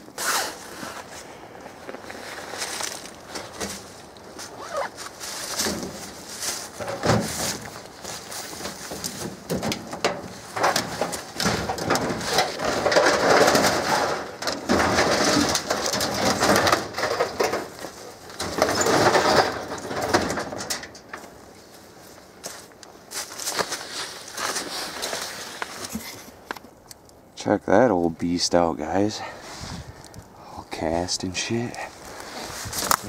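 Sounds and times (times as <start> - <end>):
sheet metal clanks and scrapes: 8.6 - 21.2.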